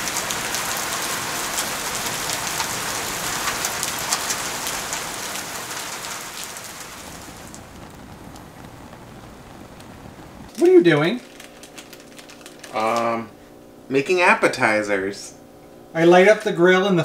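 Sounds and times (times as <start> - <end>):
heavy rain through trees: 0.0 - 13.2
sharp rain drop hits: 0.0 - 13.2.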